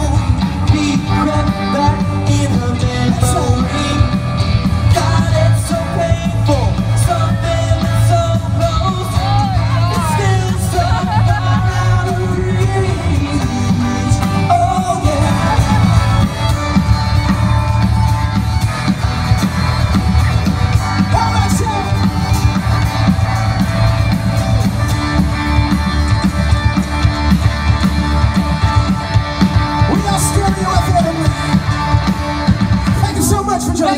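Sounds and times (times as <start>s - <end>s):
person singing: 0.0s - 16.5s
rock band playing: 0.0s - 33.9s.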